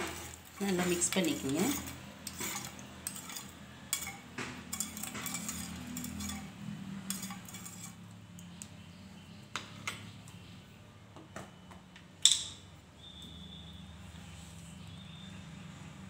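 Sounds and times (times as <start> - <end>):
spoon clinking in steel bowl: 0.1 - 6.5.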